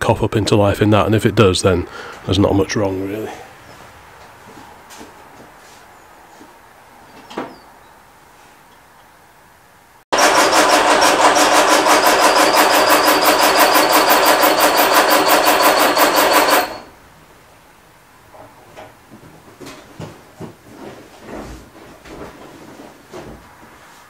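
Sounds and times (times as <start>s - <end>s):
engine cranking on starter motor: 10.2s - 16.9s.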